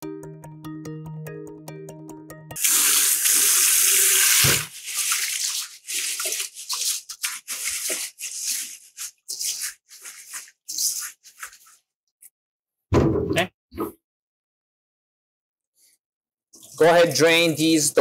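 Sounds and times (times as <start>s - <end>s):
hands swishing wet rice: 4.2s - 11.9s.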